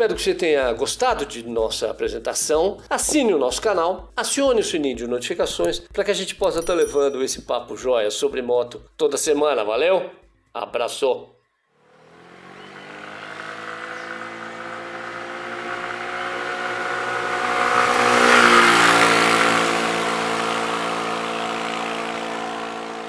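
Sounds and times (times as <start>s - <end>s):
scooter engine passing: 11.8s - 23.0s.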